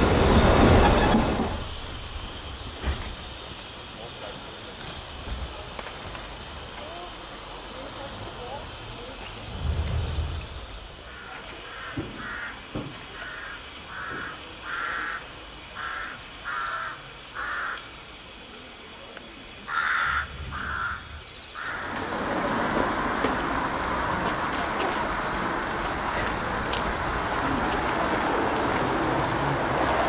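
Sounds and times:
steam train rushing noise: 0:00.0 - 0:15.8, 0:20.2 - 0:30.0
crow cawing: 0:11.0 - 0:17.9, 0:19.7 - 0:22.0.

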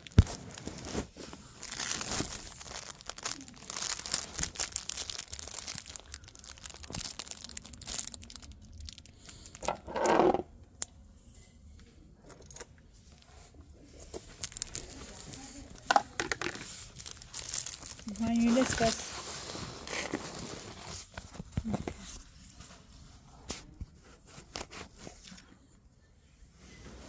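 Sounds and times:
fabric rustling on microphone: 0:00.0 - 0:04.9, 0:16.6 - 0:25.3.

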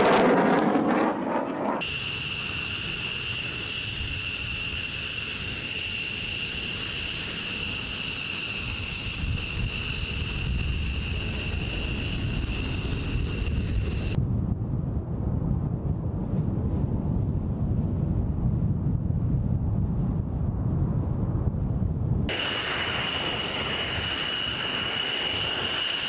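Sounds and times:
jet engines whining: 0:00.0 - 0:14.2, 0:22.3 - 0:26.0
deep jet rumble: 0:00.0 - 0:26.0.

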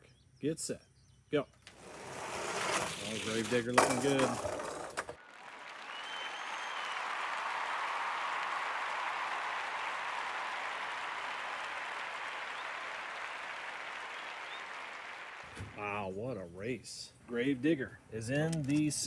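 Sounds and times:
crowd applause and cheering: 0:05.2 - 0:15.8.

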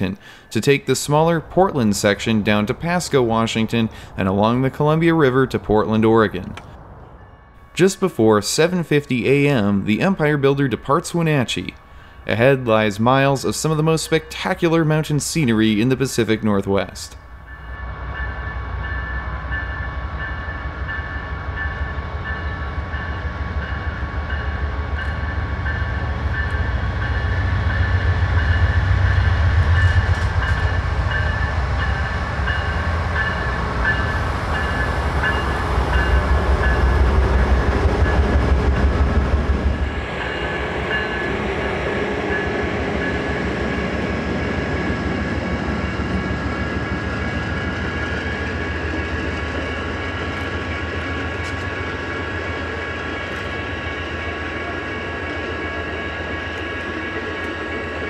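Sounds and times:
railcars rolling on rails: 0:00.0 - 0:58.0
crossing bell ringing: 0:07.1 - 0:16.6, 0:17.2 - 0:58.0
locomotive engine rumble: 0:17.2 - 0:58.0.

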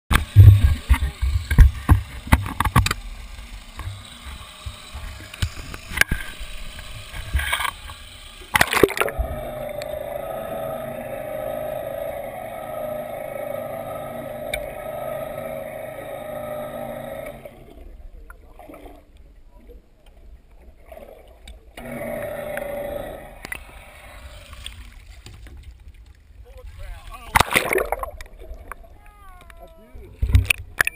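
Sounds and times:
steady hum: 0:00.1 - 0:20.0, 0:21.7 - 0:25.3
muffled underwater sound: 0:26.4 - 0:30.9.

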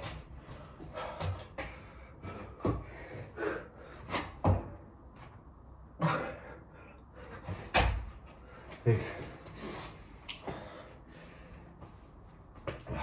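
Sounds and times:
heavy breathing: 0:00.3 - 0:04.3, 0:06.0 - 0:12.2.

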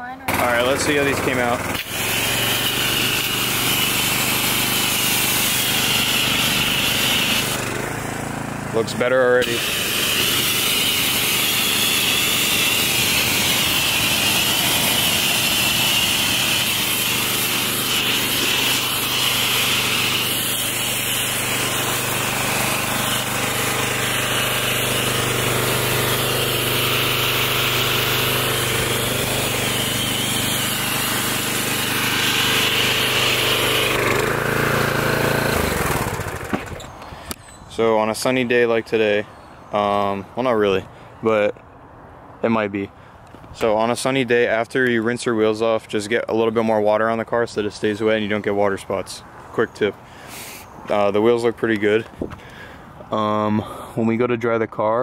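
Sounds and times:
pressure washer motor humming: 0:00.0 - 0:39.0
water jet hissing: 0:00.3 - 0:08.2, 0:08.8 - 0:36.3, 0:50.0 - 0:51.0.

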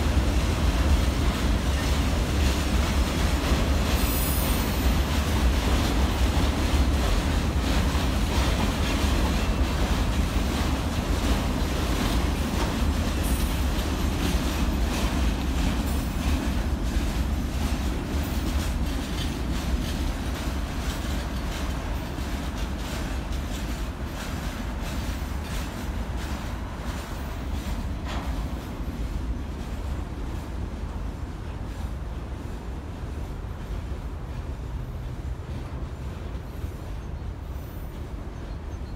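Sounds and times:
wheels clicking over rail joints: 0:00.0 - 0:30.6
freight train rolling past: 0:00.0 - 0:38.9.

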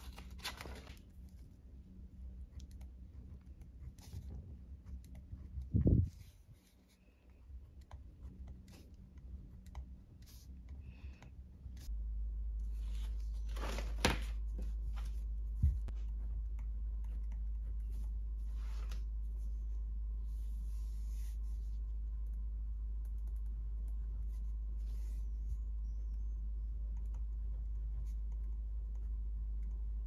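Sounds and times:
paper rustling: 0:00.0 - 0:01.0, 0:12.7 - 0:15.9
steady low hum: 0:00.0 - 0:30.0.

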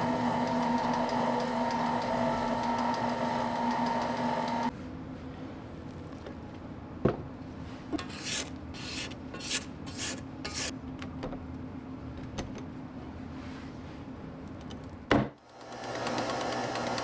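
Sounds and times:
spatula scraping metal bowl: 0:08.0 - 0:10.7.

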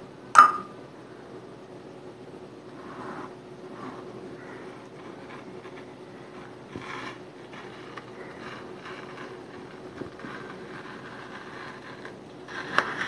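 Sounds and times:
faint steady hum: 0:00.0 - 0:13.0
spoon scraping ice cream: 0:04.6 - 0:13.0.

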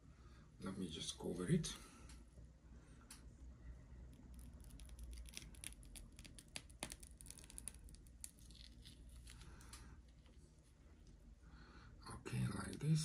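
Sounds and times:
plastic squeeze bottle crackling: 0:04.2 - 0:10.3.

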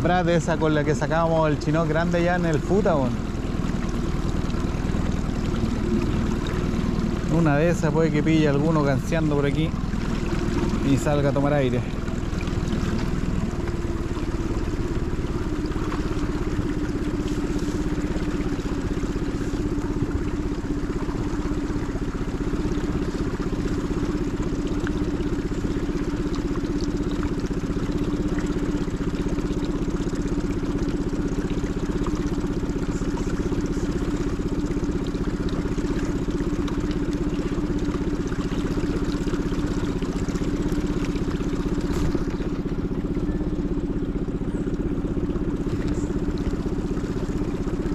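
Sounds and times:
outboard motor running: 0:00.0 - 0:47.9.

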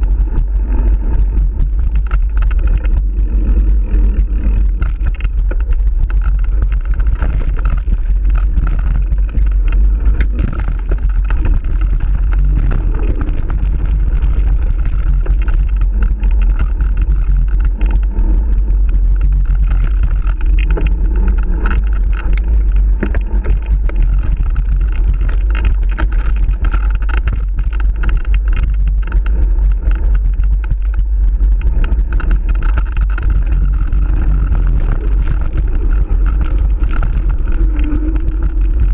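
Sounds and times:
bike rattling and knocking: 0:00.0 - 0:38.9
wind rumble on microphone: 0:00.0 - 0:38.9.

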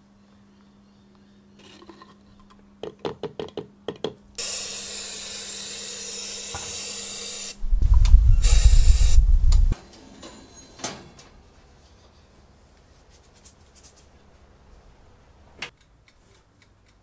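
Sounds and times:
spray gun hissing: 0:06.4 - 0:09.8
loud low rumble: 0:07.6 - 0:09.8.

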